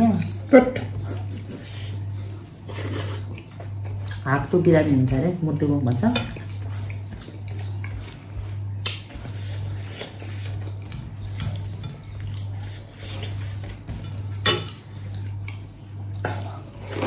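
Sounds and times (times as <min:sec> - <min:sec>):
steady low hum: 0:00.0 - 0:17.0
plates and utensils clinking: 0:10.2 - 0:15.3.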